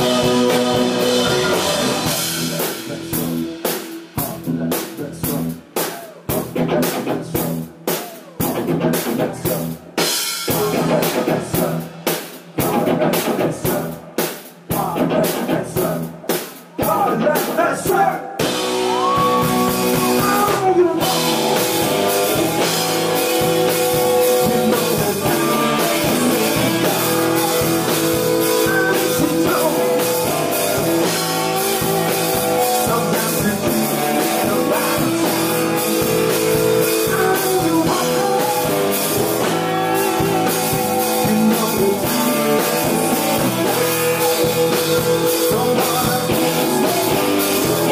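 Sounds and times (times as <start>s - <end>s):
drum kit hits: 0.0s - 8.6s, 18.4s - 47.9s
electric guitars: 0.0s - 11.8s, 18.3s - 47.9s
man singing lead vocals: 0.0s - 14.0s, 14.7s - 47.9s.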